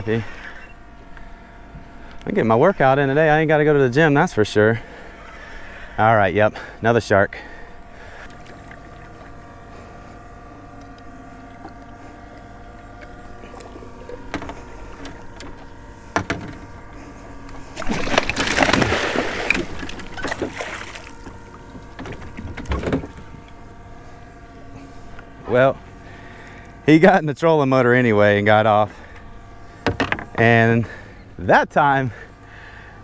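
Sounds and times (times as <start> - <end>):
electric motor whine: 0.0 - 33.0
fish thrashing and splashing: 17.6 - 23.3
knocks on boat hull: 29.8 - 30.4.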